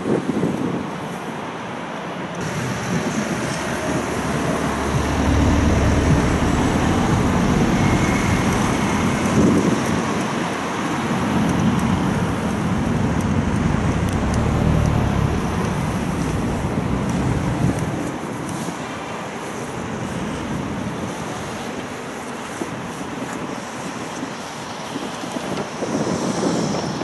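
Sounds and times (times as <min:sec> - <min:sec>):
wind rumble on microphone: 0:00.0 - 0:01.4, 0:02.4 - 0:27.0
cars passing close: 0:02.4 - 0:21.6.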